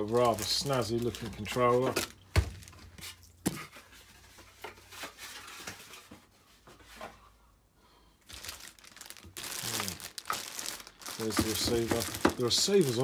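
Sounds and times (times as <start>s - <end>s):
plastic bag crinkling: 0.0s - 2.8s, 8.3s - 13.0s.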